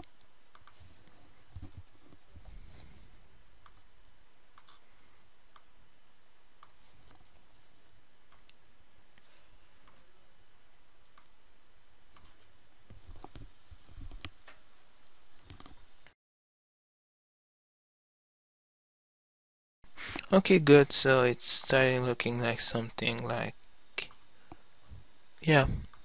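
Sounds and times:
steady background hiss: 19.9 - 26.0.

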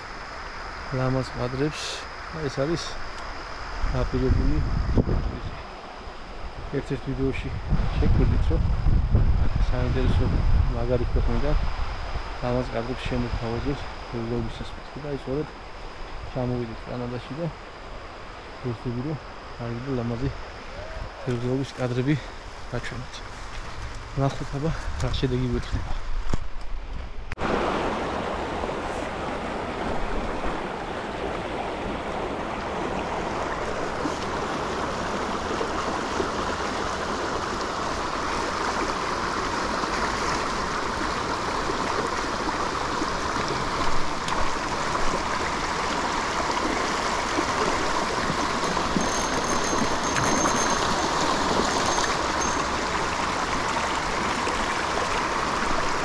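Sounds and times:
river water flowing: 27.4 - 56.0.

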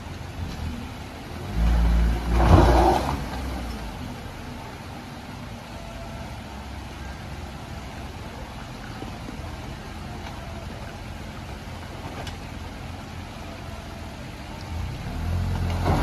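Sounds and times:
car engine revving: 0.3 - 4.0.

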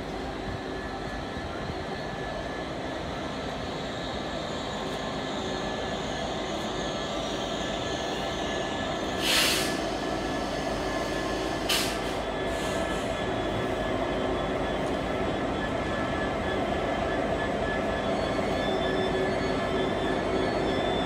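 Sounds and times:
diesel locomotive engine: 0.0 - 21.0
loud air hiss: 9.1 - 13.2.

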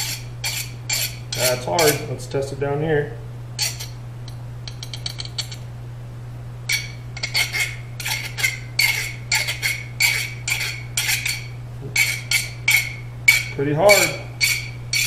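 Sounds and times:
file scraping on steel: 0.0 - 2.1, 3.6 - 4.0, 6.7 - 15.0
steady low hum: 0.0 - 15.0.

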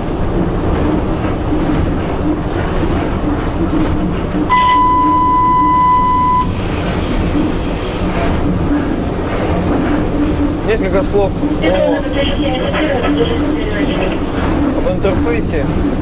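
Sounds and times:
train wheels rumbling on rails: 0.0 - 16.0
high-pitched tone: 4.5 - 6.5.

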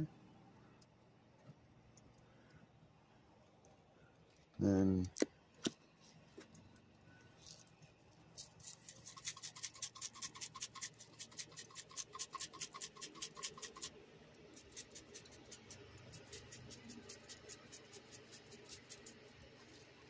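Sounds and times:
shaker jar rattling: 7.4 - 13.9.

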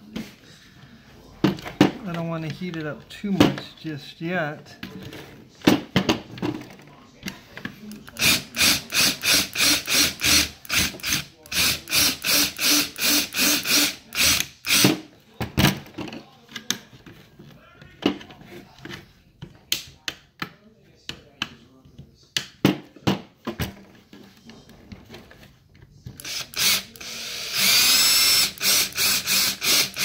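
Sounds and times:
power drill short bursts: 26.2 - 30.0.

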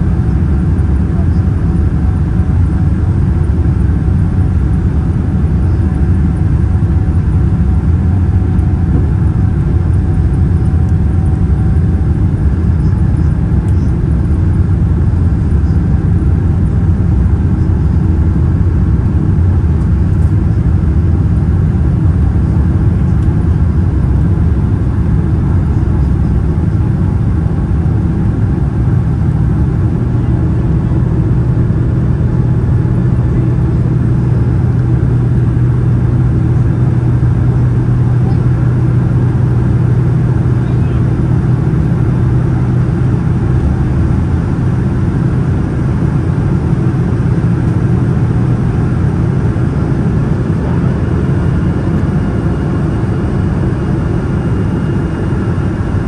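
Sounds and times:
airplane cabin engine roar: 0.0 - 56.0
steady low hum: 0.0 - 56.0.

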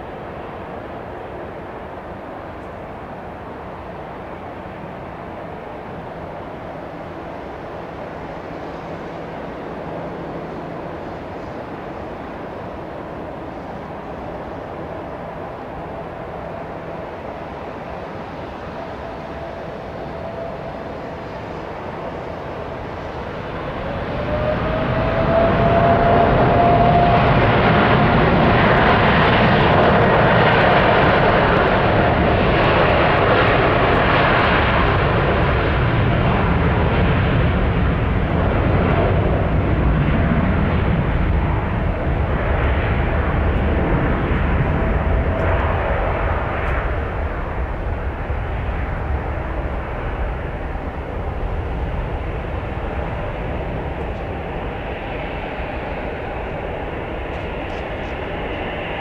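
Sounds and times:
jet engines roaring at take-off: 0.0 - 59.0.

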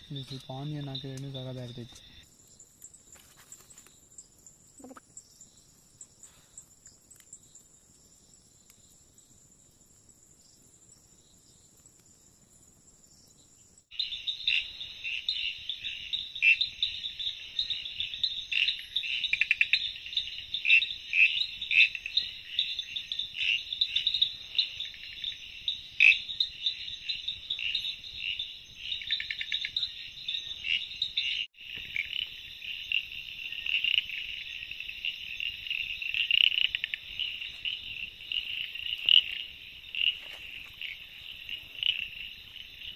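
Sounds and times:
frogs and insects chorus: 0.0 - 42.9.

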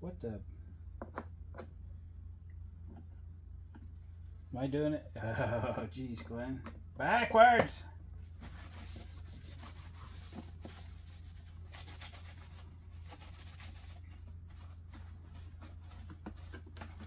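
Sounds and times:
low steady hum: 0.0 - 17.0
hands rubbing and scratching: 8.4 - 17.0.

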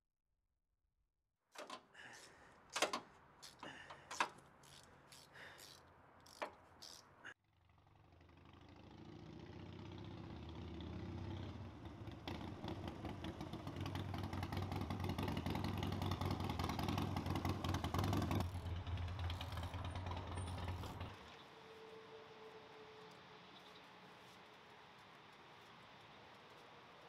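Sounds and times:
motorcycle engine running: 6.3 - 21.1.

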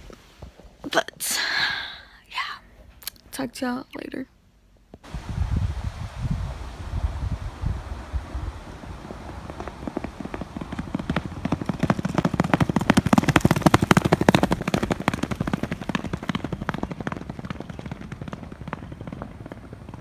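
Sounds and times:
horse hoofbeats galloping: 8.3 - 20.0.

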